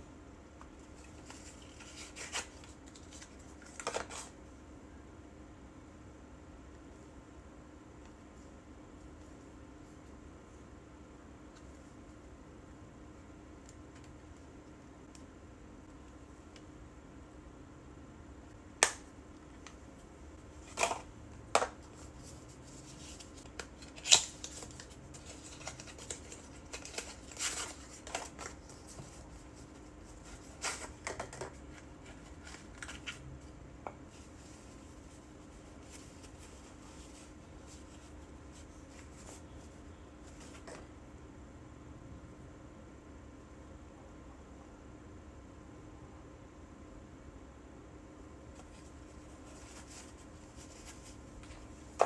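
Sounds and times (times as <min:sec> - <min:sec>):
faint steady hum: 0:00.0 - 0:52.0
paper and cardboard rustling: 0:00.8 - 0:04.3, 0:21.8 - 0:33.3, 0:48.6 - 0:52.0.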